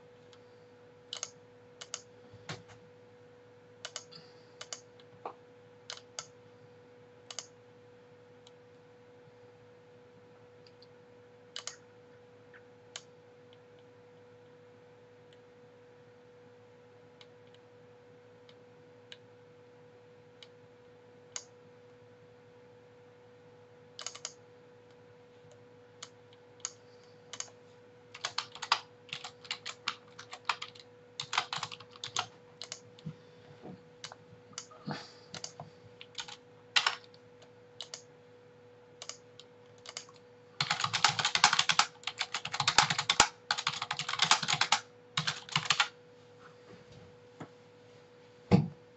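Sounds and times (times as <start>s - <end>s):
faint steady hum: 0.0s - 48.9s
keyboard typing: 1.1s - 2.6s, 3.8s - 4.9s, 5.9s - 6.3s, 7.3s - 7.6s, 11.6s - 11.8s, 24.0s - 24.4s, 26.0s - 33.1s, 34.0s - 37.2s, 37.8s - 38.0s, 39.0s - 46.0s.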